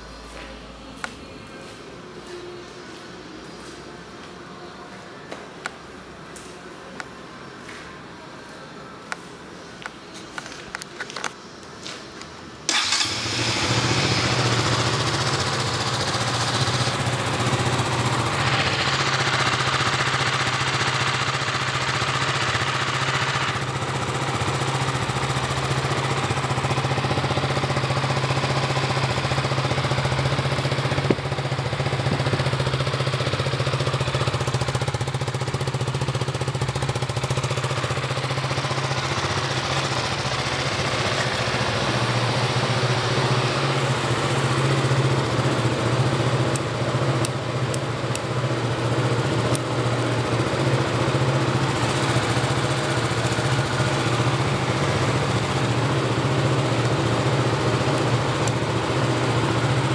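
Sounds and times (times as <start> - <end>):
motorcycle engine starting and idling: 10.4 - 59.9.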